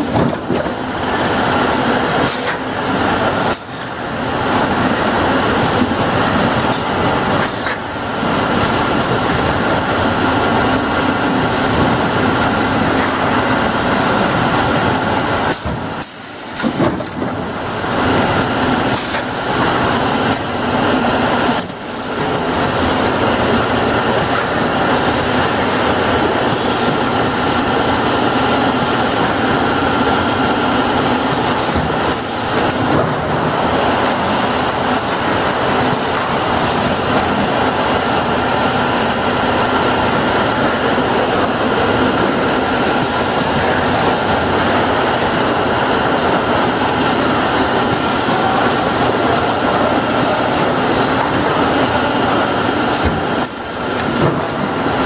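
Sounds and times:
packing machinery din: 0:00.0 - 0:00.9.

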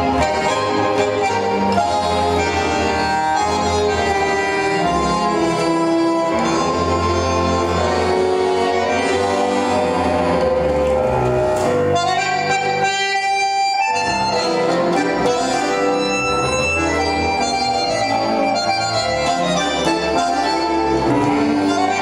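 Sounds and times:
orchestral tango music: 0:00.0 - 0:22.0.

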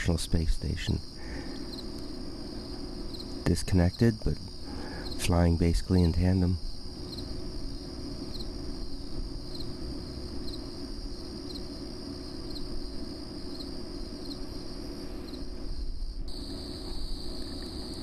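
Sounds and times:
insects trilling: 0:00.0 - 0:18.0
low background rumble: 0:00.0 - 0:18.0.

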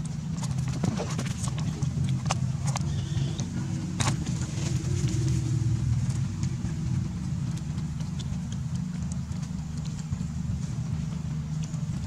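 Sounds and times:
low rumble: 0:00.0 - 0:12.0.

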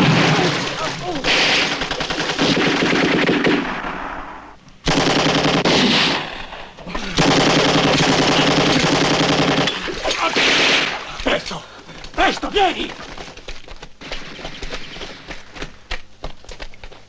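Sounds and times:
machine-gun fire: 0:00.0 - 0:06.4, 0:07.2 - 0:11.0, 0:14.0 - 0:15.7.

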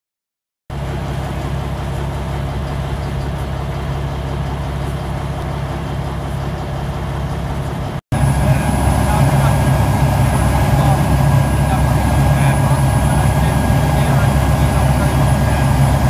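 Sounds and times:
motorboat engine drone: 0:00.7 - 0:16.0
water rushing: 0:08.2 - 0:16.0.

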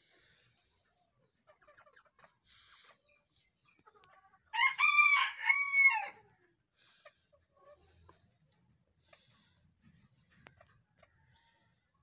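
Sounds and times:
rooster crowing: 0:04.5 - 0:06.2.

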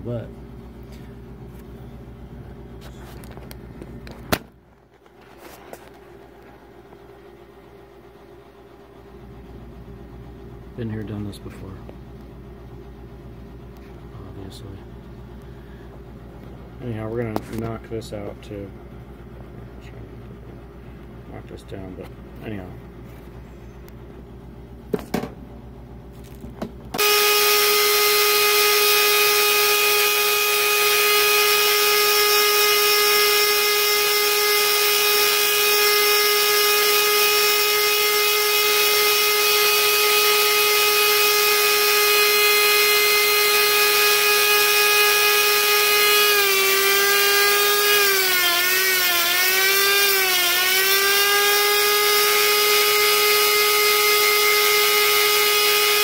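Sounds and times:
die grinder whining: 0:27.0 - 0:56.0.

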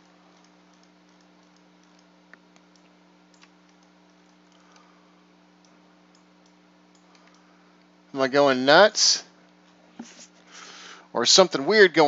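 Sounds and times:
computer mouse clicks: 0:00.0 - 0:04.9, 0:05.6 - 0:07.5
steady low hum: 0:00.0 - 0:12.0.

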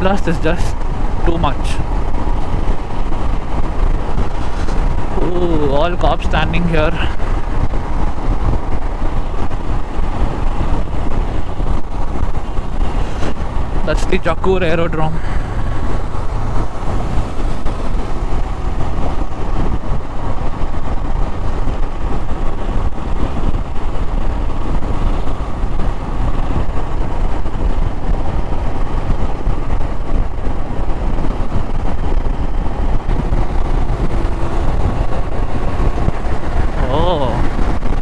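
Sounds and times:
motorcycle engine and road noise: 0:00.0 - 0:38.0
wind rushing over microphone: 0:00.0 - 0:38.0.

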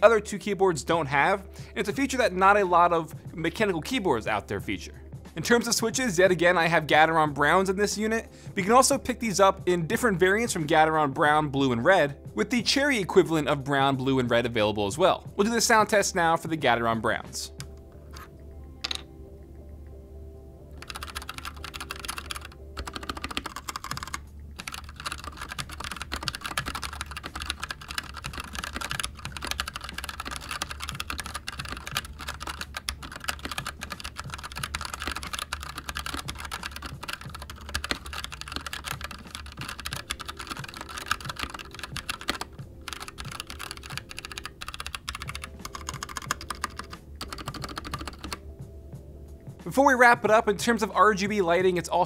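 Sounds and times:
mechanical keyboard typing: 0:20.8 - 0:48.4.

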